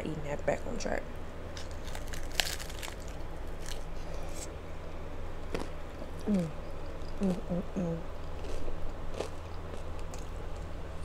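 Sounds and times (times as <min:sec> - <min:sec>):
crunching taco shell: 0:01.5 - 0:04.5, 0:08.3 - 0:10.7.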